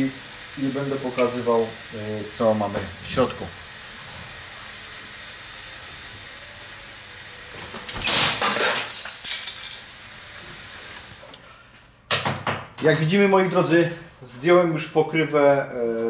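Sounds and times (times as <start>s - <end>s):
background hiss: 0.0s - 12.0s.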